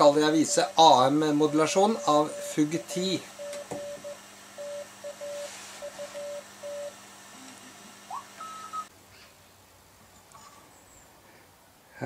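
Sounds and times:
morse code tone: 0.0 - 8.9
rising whistle: 8.1 - 8.9.

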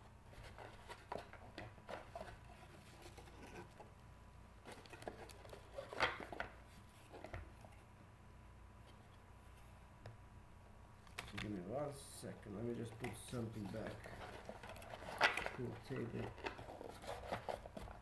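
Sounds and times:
trading cards being handled: 11.0 - 11.8, 12.4 - 18.0.

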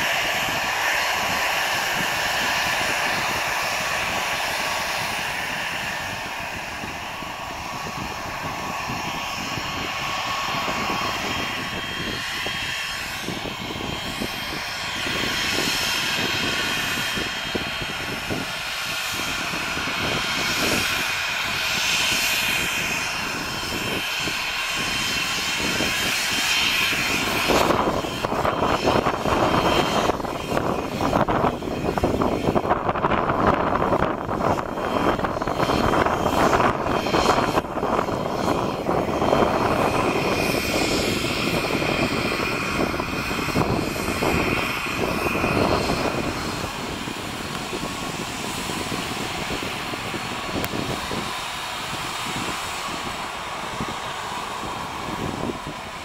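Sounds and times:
jet engines whining: 0.0 - 56.0.

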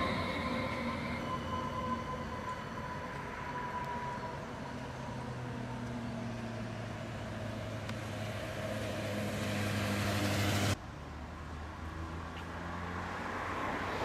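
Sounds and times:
tram electric drive whine: 0.0 - 10.8.

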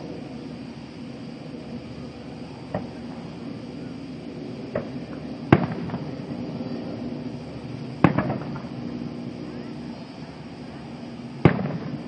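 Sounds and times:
firework crackle: 0.0 - 12.0
firework bangs: 4.7 - 6.4, 8.0 - 8.8, 11.4 - 12.0.

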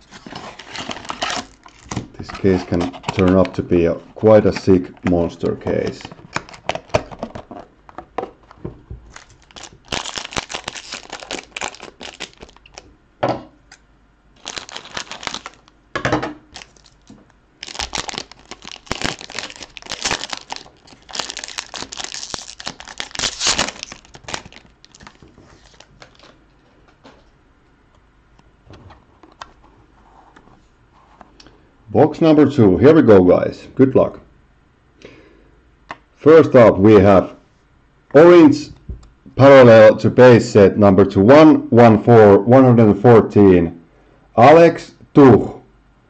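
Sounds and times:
plastic wrapper tearing and crinkling: 0.0 - 3.6, 5.7 - 7.6, 8.4 - 12.9, 14.4 - 15.8, 16.5 - 26.4.

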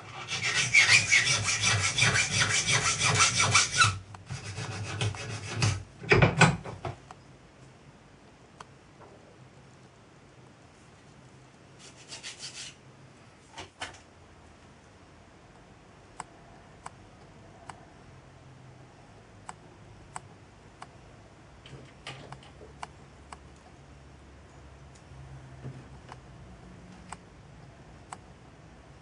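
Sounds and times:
hand file rasping on brass: 0.1 - 5.8.

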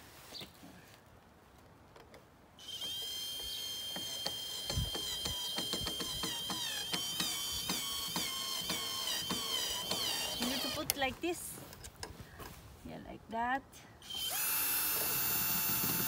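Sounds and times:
cordless drill motor whine: 2.6 - 10.8, 14.0 - 16.0
drill clicking: 14.1 - 16.0.

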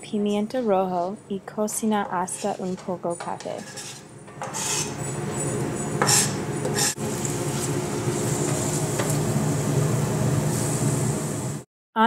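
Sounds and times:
knife scraping cutting board: 1.7 - 9.2
pepper sizzling in hot oil: 3.4 - 11.6.

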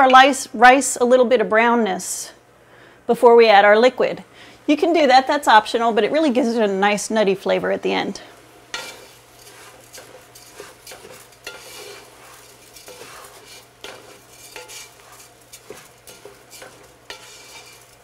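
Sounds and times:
rice sizzling in hot oil: 8.0 - 18.0
wooden spoon scraping a pot: 8.7 - 18.0.

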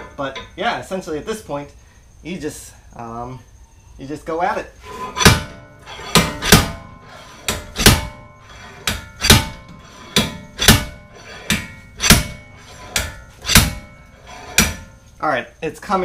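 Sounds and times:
slide hammer clanking on metal: 5.0 - 15.0.

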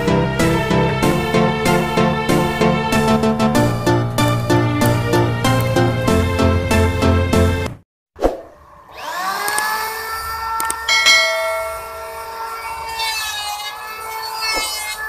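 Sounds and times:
electric planer motor whine: 8.7 - 15.0
planer cutter shaving wood: 11.5 - 15.0.

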